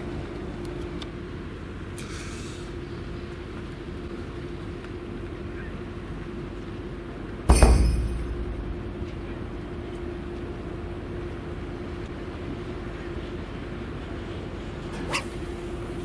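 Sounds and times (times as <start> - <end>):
outdoor hum with low tone: 0.0 - 16.0
loud thump: 7.5 - 9.4.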